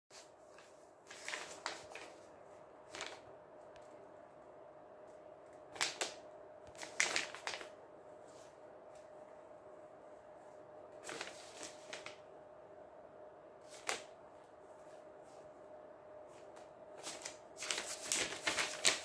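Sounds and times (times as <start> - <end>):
paper rustling and crackling: 0.1 - 4.0, 5.5 - 9.1, 11.0 - 12.2, 13.6 - 14.2, 16.3 - 19.0
faint steady hum: 0.1 - 19.0.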